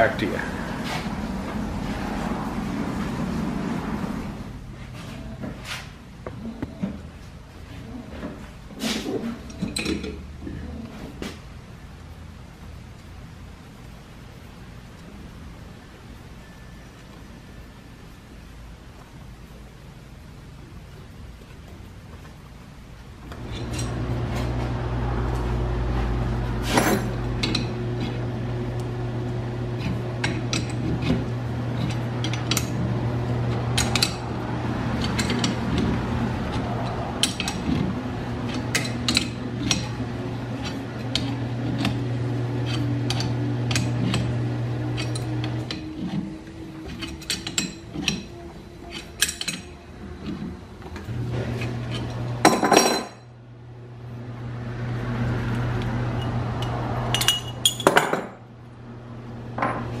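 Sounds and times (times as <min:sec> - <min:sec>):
steady low hum: 0:00.0 - 1:00.0
metal clinking and scraping: 0:23.3 - 0:24.6, 0:35.0 - 0:42.0, 0:44.9 - 0:50.6, 0:56.2 - 0:58.4.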